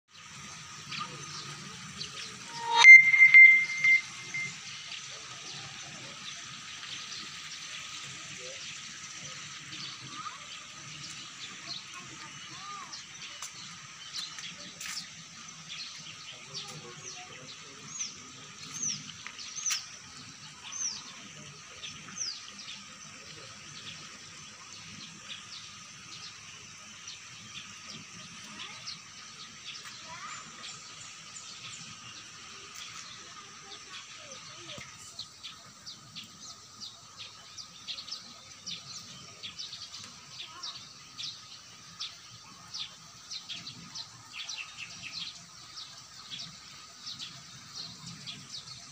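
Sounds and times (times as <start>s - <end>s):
birds chirping: 1.0s - 4.6s.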